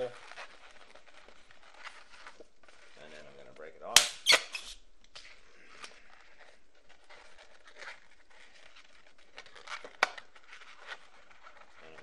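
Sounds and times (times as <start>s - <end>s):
balloons squeaking and rubbing: 0.0s - 12.0s
balloon popping: 3.9s - 4.8s
quick balloon snaps: 4.0s - 4.8s.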